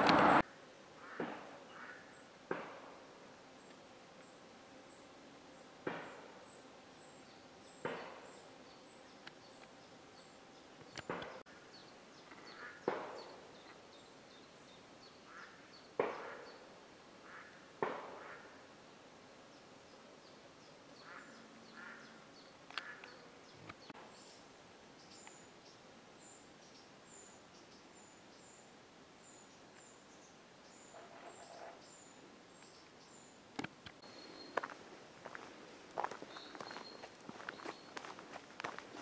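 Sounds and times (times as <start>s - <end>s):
faint high chirping: 34.0s - 34.8s, 36.2s - 38.1s.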